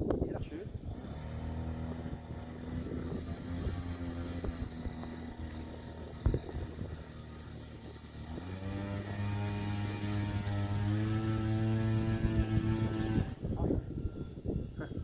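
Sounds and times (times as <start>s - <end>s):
wind buffeting microphone: 0.0s - 15.0s
model plane motors droning: 0.4s - 15.0s.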